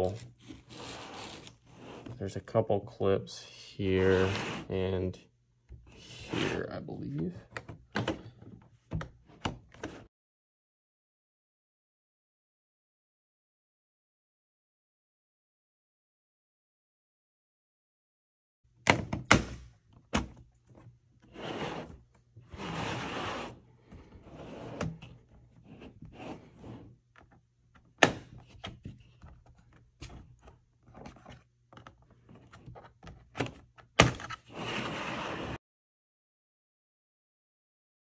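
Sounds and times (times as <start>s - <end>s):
plastic scraping and rubbing: 0.0s - 2.3s, 4.0s - 4.8s, 21.3s - 35.6s.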